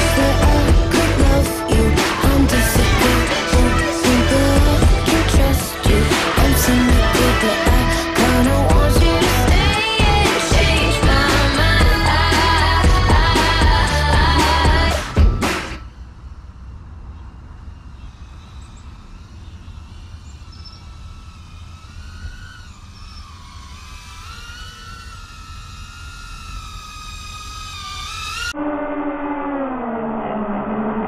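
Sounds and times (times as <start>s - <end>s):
background music: 0.0s - 15.8s
steady low rumble: 0.0s - 21.8s
drone motors whining: 0.0s - 31.0s.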